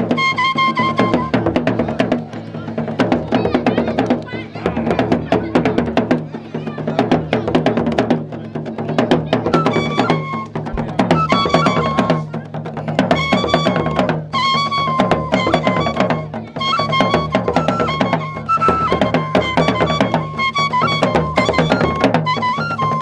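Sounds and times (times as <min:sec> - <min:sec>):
high piping wind instruments: 0:00.0 - 0:01.6, 0:09.5 - 0:23.0
hand drums beaten fast: 0:00.0 - 0:23.0.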